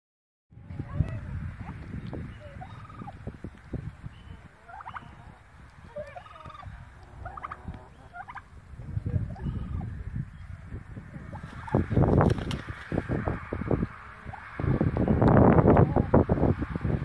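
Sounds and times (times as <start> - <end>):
wind rumble on microphone: 0.5 - 17.0
turkey gobbling: 2.5 - 3.2, 4.3 - 8.6, 9.3 - 9.9.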